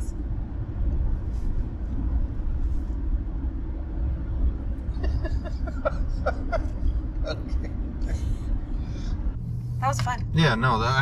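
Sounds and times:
car cabin road rumble: 0.0s - 11.0s
person laughing: 4.9s - 8.5s.

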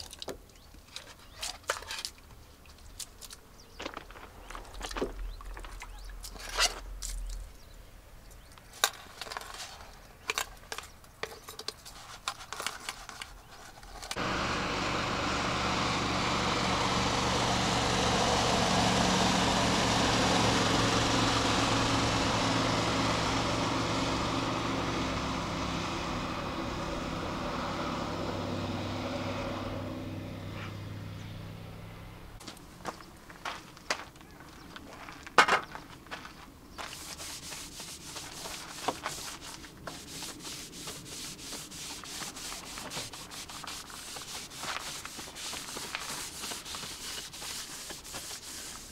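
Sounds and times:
motor engine humming: 14.2s - 33.0s.

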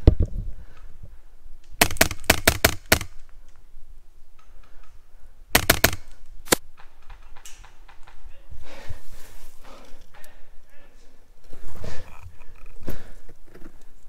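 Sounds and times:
airsoft rifle shots: 1.8s - 3.2s, 5.5s - 6.9s.

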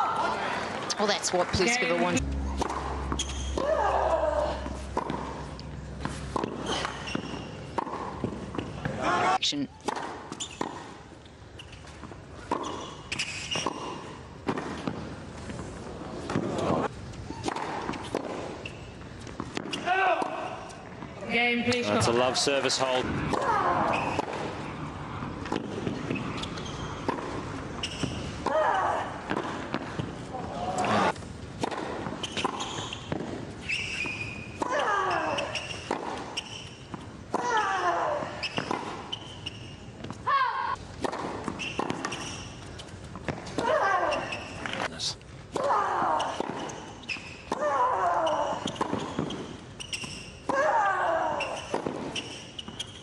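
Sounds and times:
tennis ball bouncing on court: 1.8s - 4.0s, 4.6s - 9.0s, 9.8s - 11.0s, 11.6s - 16.8s, 17.4s - 21.1s, 25.4s - 28.6s, 29.2s - 30.2s, 30.8s - 34.8s, 35.5s - 37.5s, 38.4s - 43.7s, 48.6s - 50.6s, 51.5s - 53.0s
tennis ball struck by racket: 2.2s - 9.0s, 9.8s - 11.0s, 25.4s - 30.1s, 30.8s - 33.4s, 35.5s - 37.5s, 40.9s - 42.4s.

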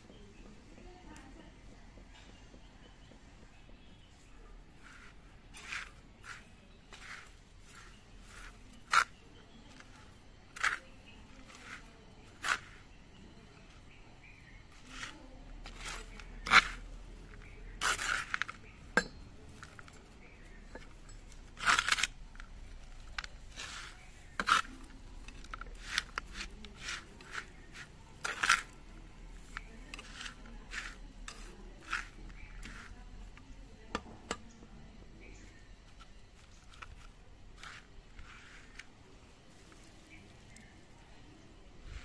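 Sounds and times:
trowel scraping soil: 4.3s - 34.0s, 35.9s - 40.7s.

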